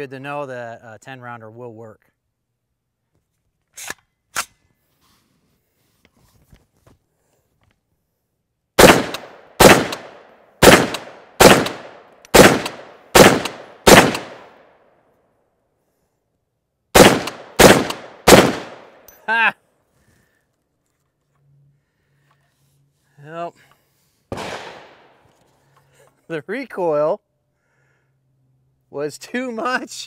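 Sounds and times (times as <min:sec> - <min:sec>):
rifle shots echoing: 0:08.8 - 0:14.7, 0:17.0 - 0:19.0, 0:24.3 - 0:25.2.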